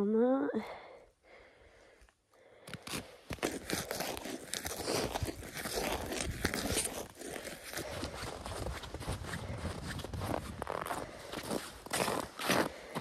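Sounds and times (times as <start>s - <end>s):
boots crunching in snow: 2.7s - 13.0s.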